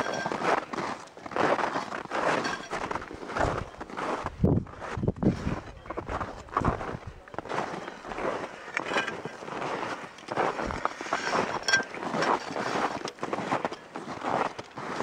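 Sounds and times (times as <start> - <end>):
footsteps crunching in snow: 0.0 - 15.0
short metallic clink: 11.3 - 12.9.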